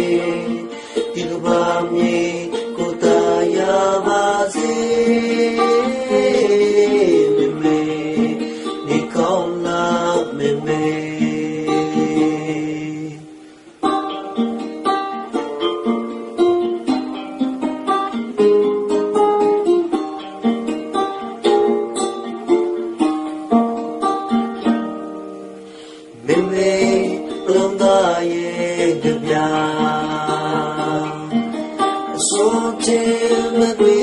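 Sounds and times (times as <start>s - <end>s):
plucked string instrument melody: 0.0s - 34.0s.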